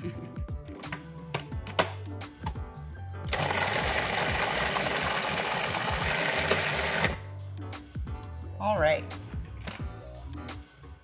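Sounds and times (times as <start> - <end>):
food processor running: 3.3 - 7.2.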